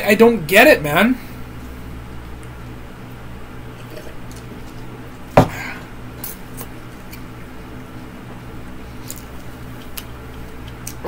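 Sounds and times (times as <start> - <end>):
low room hum: 0.0 - 11.0
cup set down on a table: 5.4 - 5.6.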